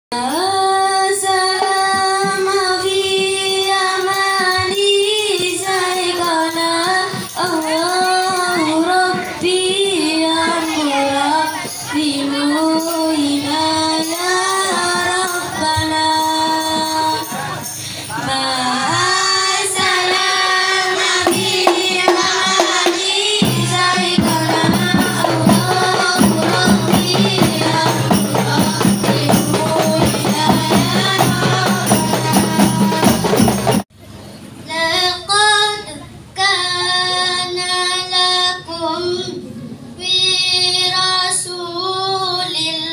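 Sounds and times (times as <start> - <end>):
woman singing into a microphone: 0.1 - 33.8, 34.7 - 42.9
frame drums playing rhythm: 14.1 - 33.9.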